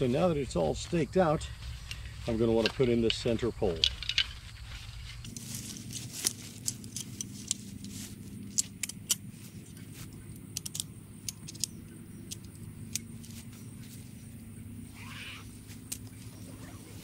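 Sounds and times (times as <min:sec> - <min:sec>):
steady low hum: 0:00.0 - 0:17.0
metallic clicks and clinks: 0:01.8 - 0:04.4, 0:05.2 - 0:07.7, 0:08.5 - 0:09.3, 0:10.2 - 0:13.4.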